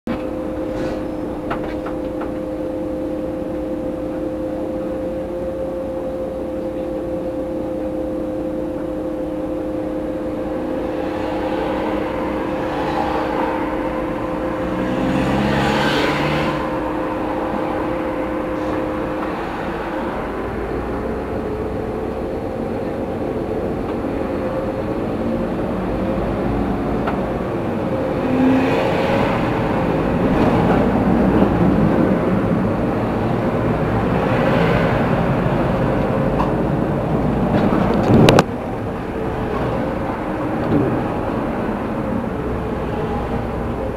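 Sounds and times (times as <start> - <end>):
engine rising and falling: 0.1 - 43.9
steady two-tone hum: 0.1 - 43.9
car passing: 9.9 - 43.9.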